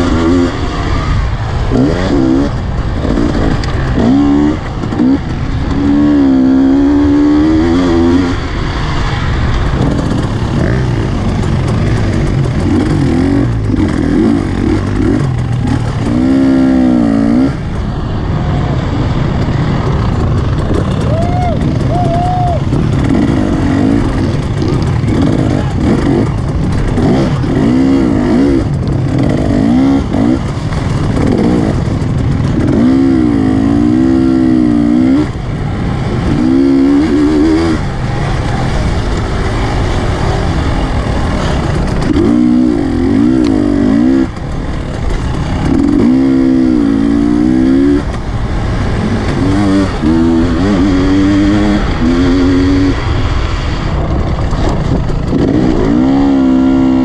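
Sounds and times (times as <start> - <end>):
dirt bike engine revving: 0.0 - 57.0
wind rush: 0.0 - 57.0.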